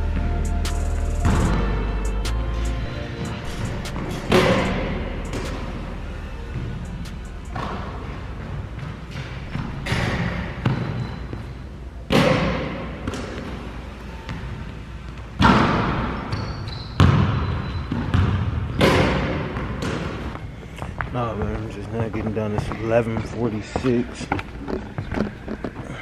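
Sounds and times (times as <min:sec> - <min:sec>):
basketballs bouncing on hardwood floor: 0:07.5 - 0:11.4, 0:12.1 - 0:13.6, 0:15.4 - 0:26.0.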